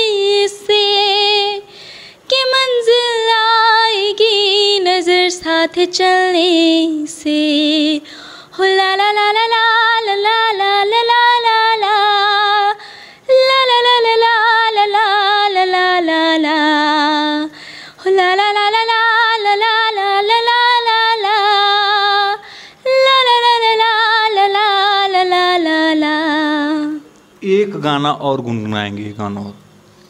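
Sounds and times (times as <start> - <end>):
woman singing unaccompanied: 0.0 - 27.1
singer breathing: 1.7 - 2.3, 8.0 - 8.6, 12.8 - 13.3, 17.5 - 18.0, 22.4 - 22.9.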